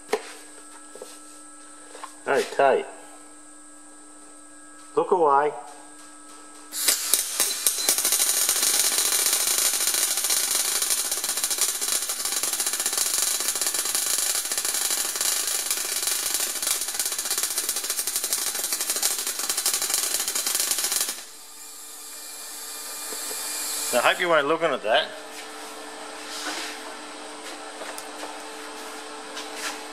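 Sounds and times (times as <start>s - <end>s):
welder arc crackling: 6.7s - 25.1s
shielding gas flowing: 6.7s - 27.0s.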